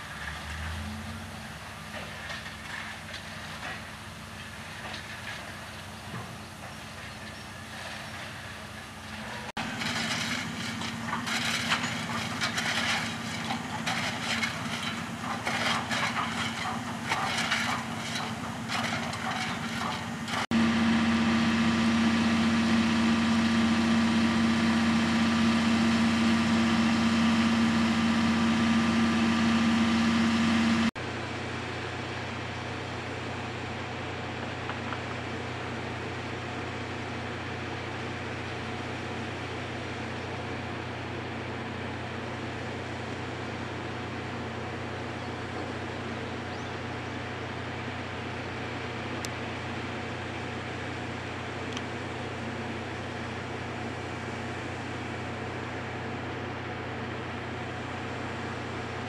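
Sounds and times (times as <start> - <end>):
steam hissing and crackling: 0.0 - 20.5
loud droning tone: 20.5 - 31.0.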